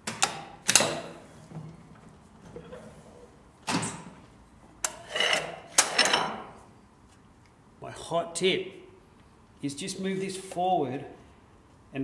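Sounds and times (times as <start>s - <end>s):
metal scraping slide: 4.9s - 6.4s.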